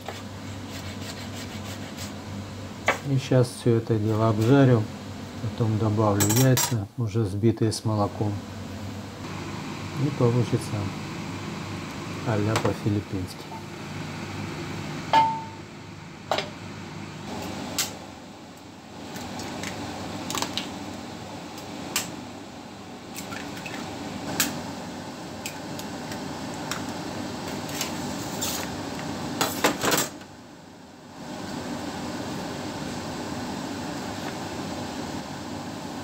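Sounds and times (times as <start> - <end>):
metal utensils clinking on a pan: 6.2 - 6.8
ringing metal strike: 15.1 - 15.6.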